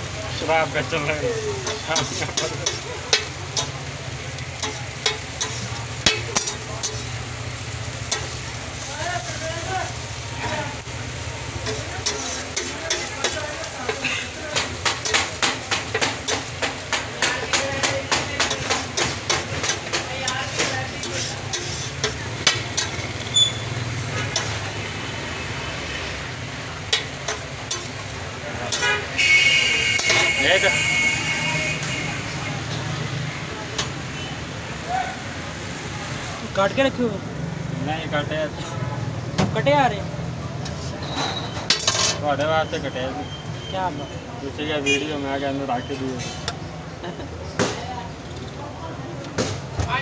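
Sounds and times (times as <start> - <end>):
frying sizzle: 0.0 - 50.0
low traffic hum: 0.0 - 50.0
metal spatula scraping griddle: 0.8 - 9.4, 11.6 - 24.8, 26.8 - 29.2, 29.9 - 30.7, 40.6 - 42.5, 46.1 - 46.6
sharp metallic taps: 14.5 - 20.8.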